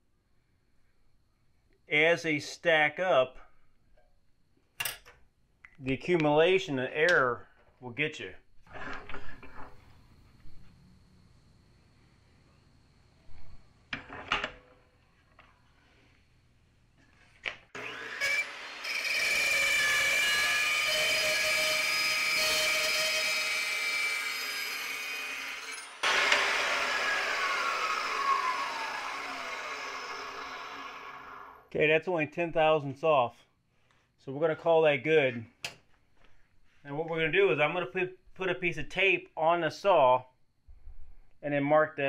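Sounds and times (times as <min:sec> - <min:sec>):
saw blade winding down: 0:17.8 - 0:31.7
saw cutting metal whine: 0:17.8 - 0:31.7.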